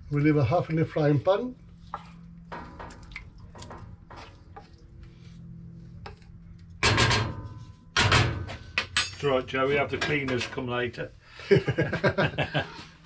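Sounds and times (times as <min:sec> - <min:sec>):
low steady hum: 0:00.0 - 0:13.0
food squelching into pot: 0:01.6 - 0:06.8.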